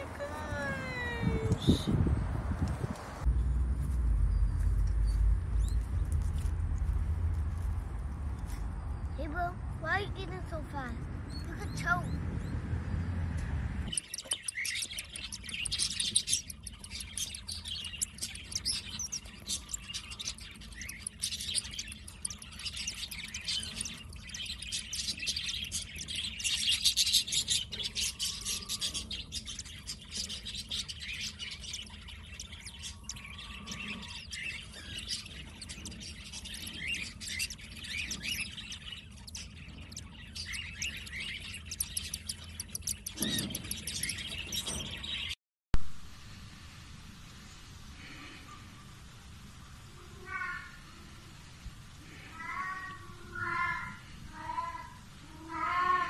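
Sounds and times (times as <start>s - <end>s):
chicks begging chirps: 10.2s - 13.2s, 13.8s - 45.4s, 52.1s - 56.0s.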